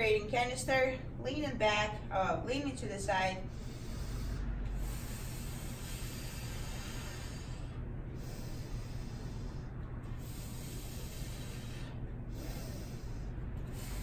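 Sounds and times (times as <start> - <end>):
low hum: 0.0 - 14.0
room hiss: 3.2 - 14.0.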